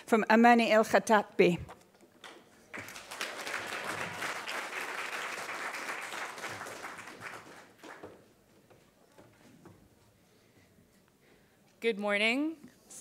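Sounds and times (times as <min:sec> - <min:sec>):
audience applauding: 0:02.6 - 0:08.4.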